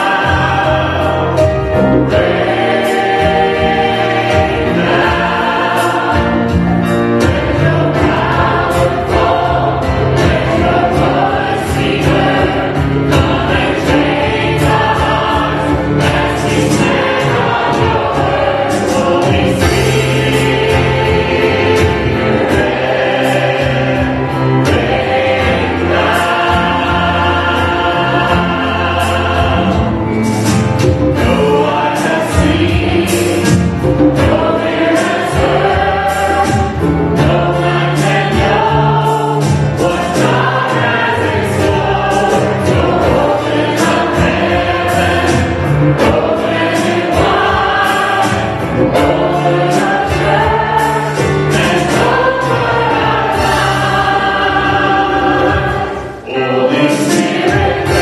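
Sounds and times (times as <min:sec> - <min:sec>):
choir and band singing praise song: 0:00.0 - 0:58.0
piano drums and guitars: 0:00.0 - 0:58.0.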